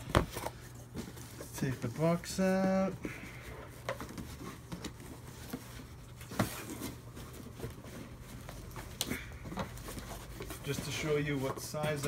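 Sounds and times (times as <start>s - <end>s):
cardboard scraping and rustling: 3.6s - 12.0s.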